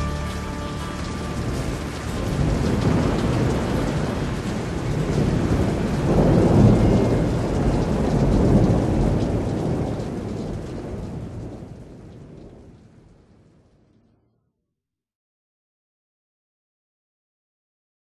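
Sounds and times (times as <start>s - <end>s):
steady rain: 0.0s - 14.2s
rolls of thunder: 2.2s - 12.8s.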